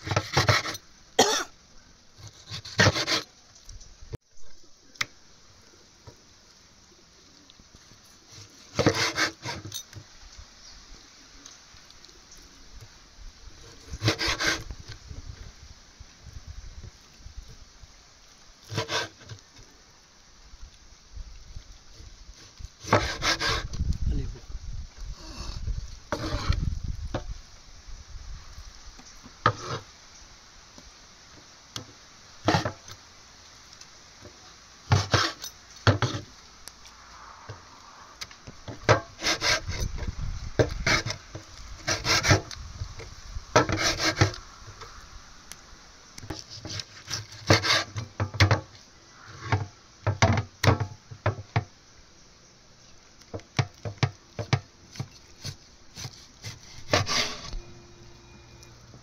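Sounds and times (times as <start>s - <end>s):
scraping on wood: 0.0s - 1.3s, 2.2s - 3.4s, 8.3s - 10.0s, 13.6s - 15.0s, 18.6s - 19.4s, 22.4s - 23.8s, 25.2s - 27.3s, 29.4s - 29.9s, 32.4s - 33.0s, 34.2s - 36.4s, 38.7s - 44.9s, 46.3s - 51.7s, 53.3s - 57.6s.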